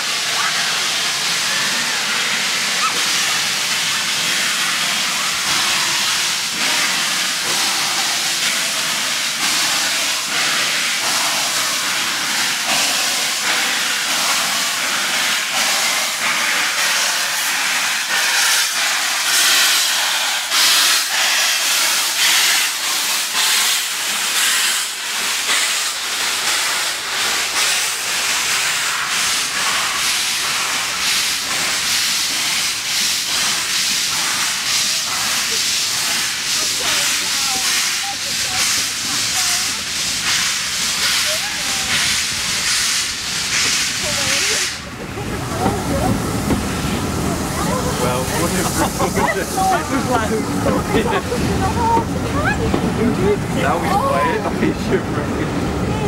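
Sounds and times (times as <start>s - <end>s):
steam hissing: 0.0s - 56.0s
steam locomotive chuffing: 0.0s - 56.0s
carriages rolling past: 44.9s - 56.0s.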